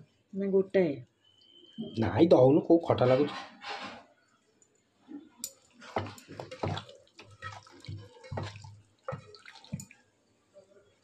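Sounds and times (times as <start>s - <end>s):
wet squelches of mixing chicken: 5.7s - 10.1s.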